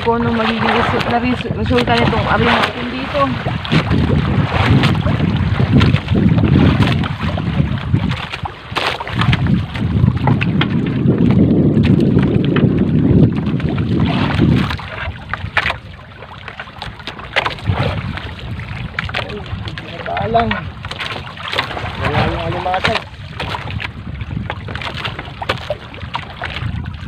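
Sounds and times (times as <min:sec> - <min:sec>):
water splashing and dripping: 0:00.0 - 0:27.0
wind buffeting microphone: 0:00.0 - 0:27.0.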